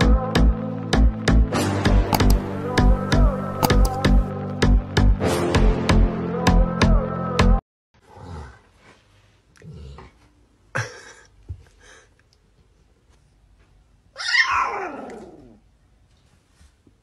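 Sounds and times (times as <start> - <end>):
puppy yapping: 14.2 - 15.5
puppy howling: 14.2 - 15.6.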